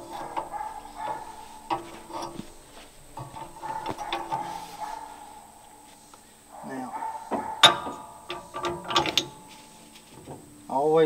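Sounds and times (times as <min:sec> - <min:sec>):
metal clinks and knocks: 0:00.0 - 0:10.6
steady humming tone: 0:00.0 - 0:11.0.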